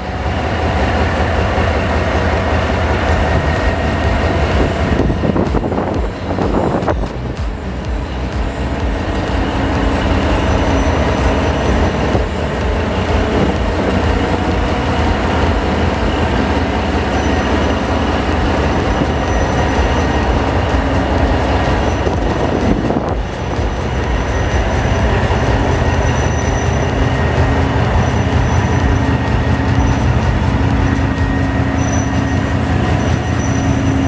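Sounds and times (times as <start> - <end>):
diesel locomotive engine rumble: 0.0 - 34.0
faint high squeal: 30.9 - 34.0.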